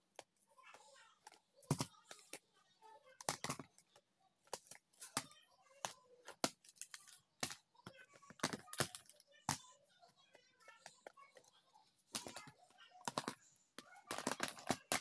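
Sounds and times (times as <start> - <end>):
plastic cases clicking and knocking: 3.2 - 3.9, 4.5 - 9.6, 12.1 - 15.0.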